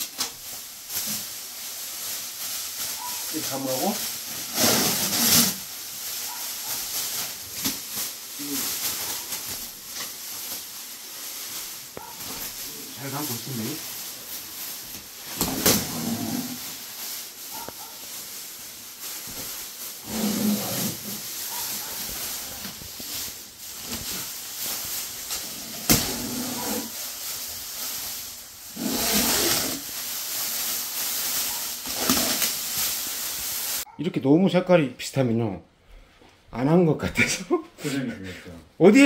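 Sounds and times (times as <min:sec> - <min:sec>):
plastic film snapping: 0:00.0 - 0:01.2, 0:29.0 - 0:33.2
plastic film crinkling: 0:00.0 - 0:34.0.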